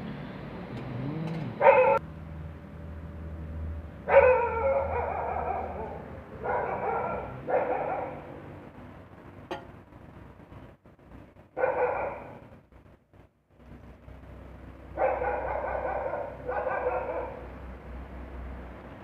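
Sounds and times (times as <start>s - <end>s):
dog barking and whining: 1.1s - 2.0s, 4.1s - 8.4s, 11.6s - 12.5s, 15.0s - 17.5s.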